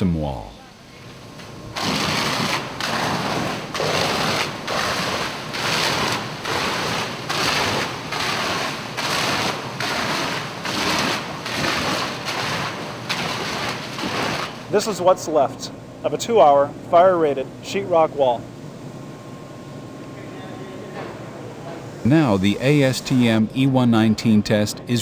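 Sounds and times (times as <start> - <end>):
fire hose spraying a wall: 1.7 - 14.8.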